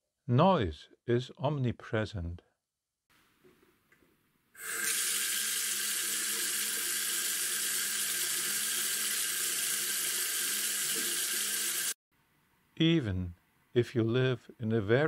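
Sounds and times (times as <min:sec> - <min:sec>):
tap water running into sink: 0:04.6 - 0:12.0.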